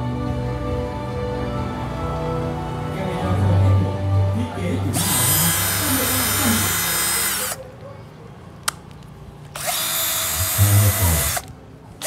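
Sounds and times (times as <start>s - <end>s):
cordless drill motor spinning: 5.0s - 7.6s, 9.5s - 11.5s
drill click: 5.0s - 7.6s, 9.5s - 11.5s.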